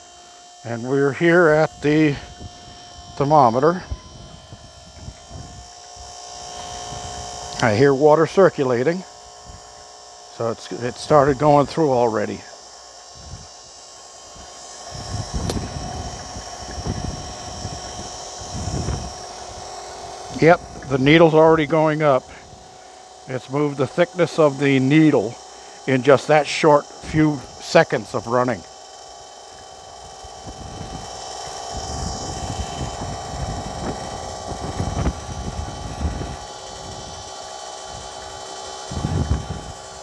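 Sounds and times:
faint water pump hum: 0:00.0 - 0:40.0
wind gusting across microphone: 0:01.7 - 0:06.2, 0:13.2 - 0:13.5, 0:14.4 - 0:19.7, 0:30.4 - 0:31.1, 0:31.7 - 0:37.2, 0:38.9 - 0:39.8
sharp click: 0:15.4 - 0:15.7.

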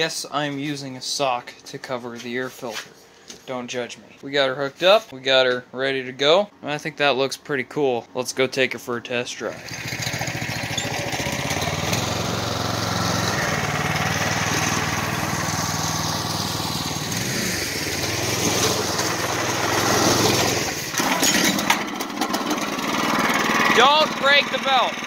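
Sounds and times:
go-kart engine: 0:09.5 - 0:25.0.

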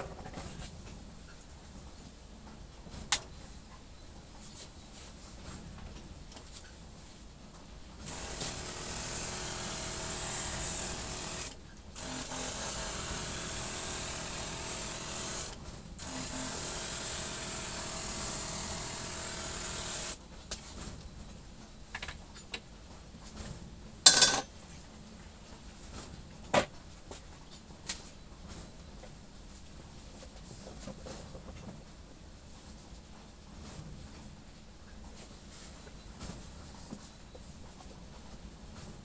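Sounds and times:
electric sprayer motor hum: 0:08.0 - 0:20.2.

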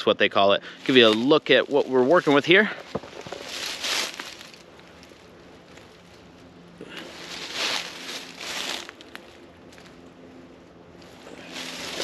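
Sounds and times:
faint low hum: 0:00.0 - 0:12.0
footsteps crunching dry leaves: 0:00.7 - 0:12.0.

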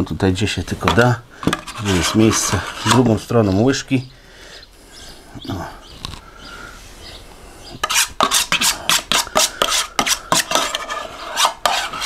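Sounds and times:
spoon scraping: 0:00.8 - 0:03.3, 0:07.8 - 0:12.0.

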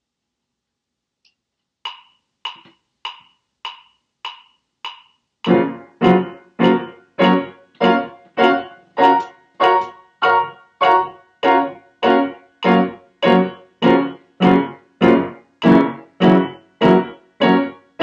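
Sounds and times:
metronome ticking: 0:01.8 - 0:18.0
piano chords: 0:05.5 - 0:18.0.

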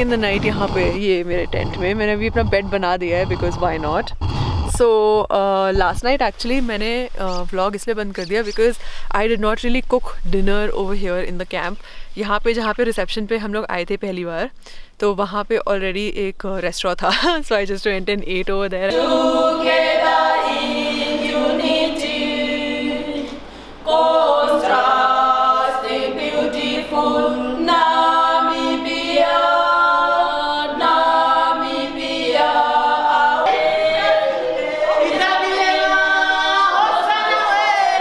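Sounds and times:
group singing a cappella: 0:18.9 - 0:38.0.

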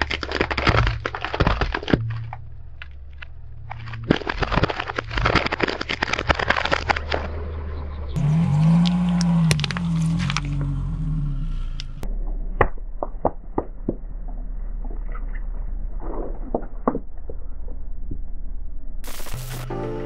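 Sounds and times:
plastic cracking and snapping: 0:00.0 - 0:07.3, 0:08.8 - 0:10.5
plastic cracks and pops: 0:00.0 - 0:07.3, 0:08.8 - 0:10.5, 0:12.6 - 0:14.0
low car engine: 0:00.0 - 0:16.0.

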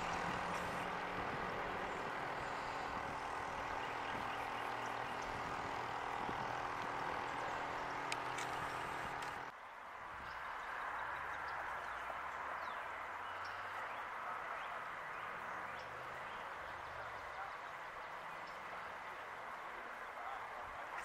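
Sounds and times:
low distant motor hum: 0:00.0 - 0:09.5.

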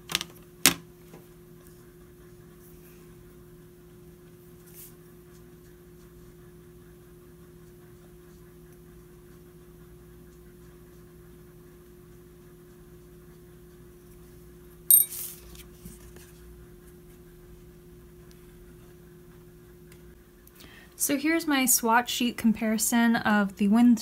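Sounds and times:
sharp clink with short ring: 0:14.9 - 0:15.2.

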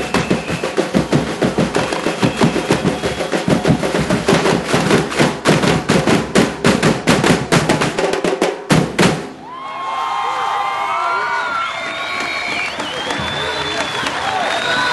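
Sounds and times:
samba drums playing fast beat: 0:00.0 - 0:09.4
voices shouting and cheering: 0:09.4 - 0:14.9.

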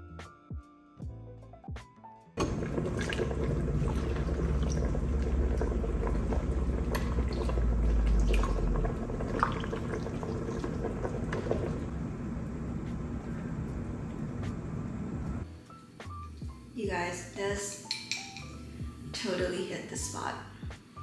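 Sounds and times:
liquid pouring and splashing: 0:02.4 - 0:12.0
ladle clicking on pot and glass: 0:17.8 - 0:18.6.

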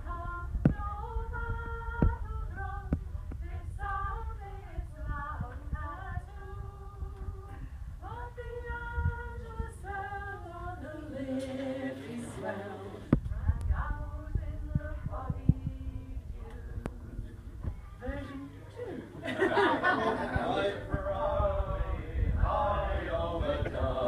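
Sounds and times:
group singing folk song: 0:00.0 - 0:17.0, 0:19.5 - 0:24.0
woman singing: 0:00.0 - 0:17.2.

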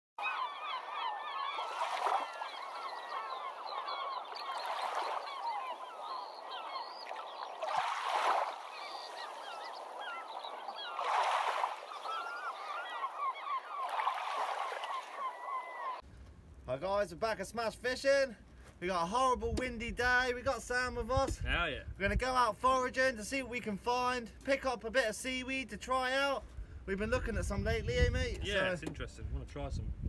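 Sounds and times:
flock of birds calling: 0:00.2 - 0:16.0.

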